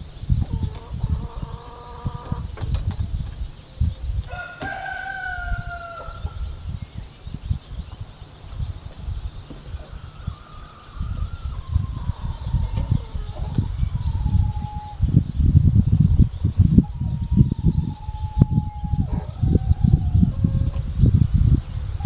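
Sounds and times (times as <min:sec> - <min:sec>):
wind on microphone: 0:00.0 - 0:22.0
rooster crowing: 0:04.3 - 0:06.5.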